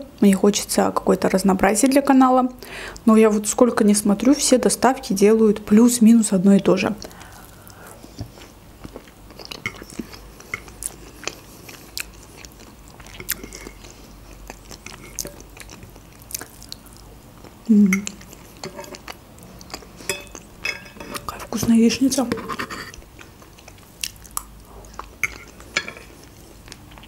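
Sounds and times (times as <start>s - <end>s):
person chewing food: 7.0s - 21.3s, 22.6s - 27.0s
person humming: 17.7s - 18.2s.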